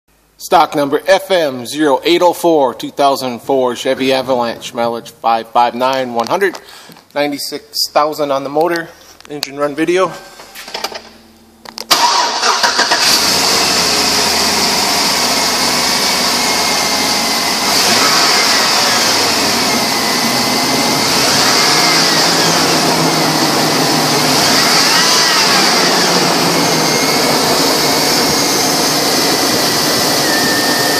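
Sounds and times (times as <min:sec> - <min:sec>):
car engine starting and running: 0:10.7 - 0:30.9.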